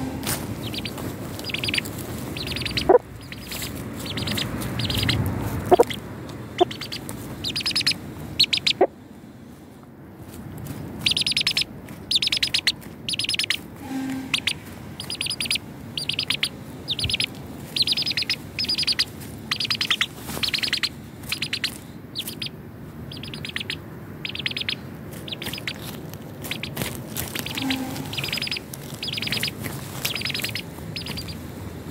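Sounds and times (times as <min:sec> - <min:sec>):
chick peeping: 0:00.0 - 0:06.0, 0:06.6 - 0:08.9, 0:11.0 - 0:31.4
short low cluck: 0:02.6 - 0:06.0.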